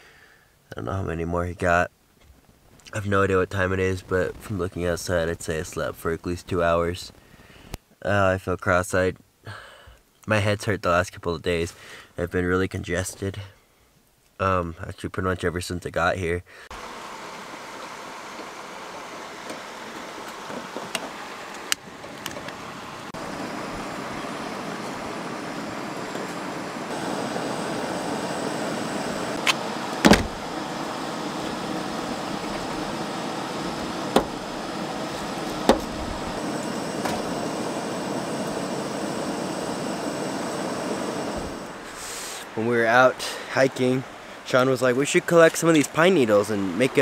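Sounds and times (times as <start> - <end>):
camp stove burner hissing: 16.7 - 42.6.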